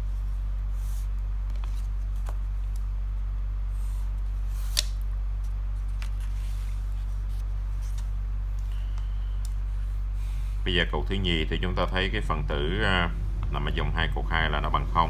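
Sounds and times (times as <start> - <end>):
low hum: 0.0 - 15.0
paper being handled: 0.7 - 2.8, 3.7 - 9.0.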